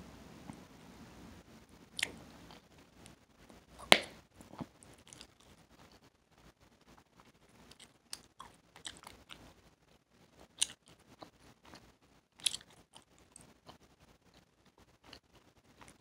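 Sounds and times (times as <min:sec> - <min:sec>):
mouth chewing gum: 0:02.0 - 0:02.7, 0:10.4 - 0:16.0.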